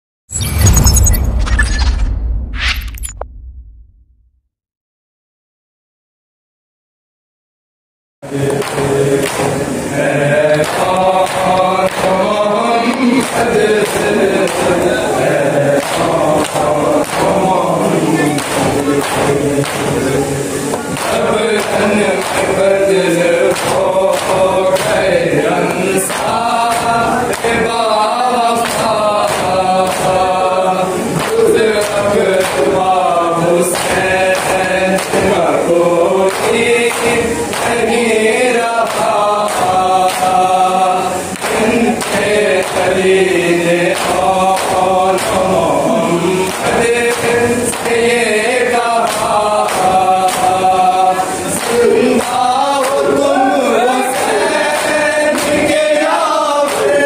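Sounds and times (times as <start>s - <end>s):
men chanting a lament: 8.2s - 57.0s
hands slapping on chests: 49.0s - 50.6s.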